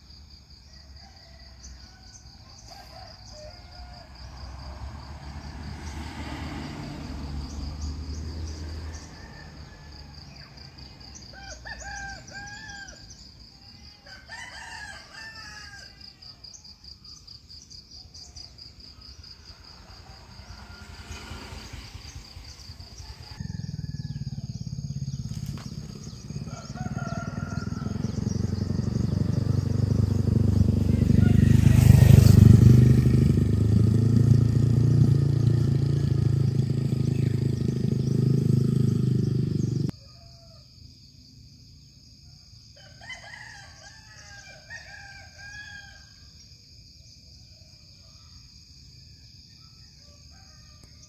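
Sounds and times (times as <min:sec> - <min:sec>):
high insect trill: 0:00.0 - 0:51.0
roosters crowing: 0:00.6 - 0:07.6, 0:08.2 - 0:16.7, 0:19.0 - 0:40.8, 0:42.7 - 0:46.3
motorcycle engine approaching: 0:04.0 - 0:11.3, 0:19.1 - 0:40.0.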